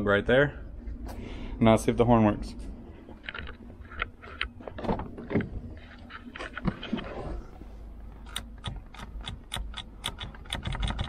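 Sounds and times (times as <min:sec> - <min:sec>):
steady low rumble: 0:00.0 - 0:10.6
knocks and rustles: 0:03.1 - 0:07.5.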